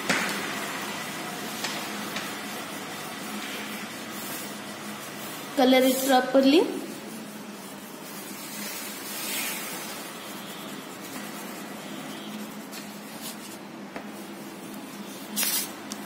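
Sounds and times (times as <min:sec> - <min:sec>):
oil pastel rubbing on paper: 0:00.5 - 0:16.0
pastel scraping on paper: 0:00.5 - 0:16.0.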